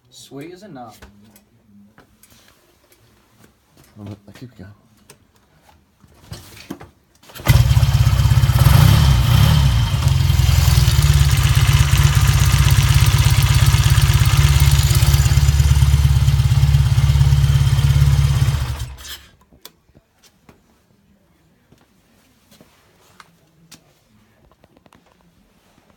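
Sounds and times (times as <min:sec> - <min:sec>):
motorcycle engine starting and running: 0:07.3 - 0:19.3.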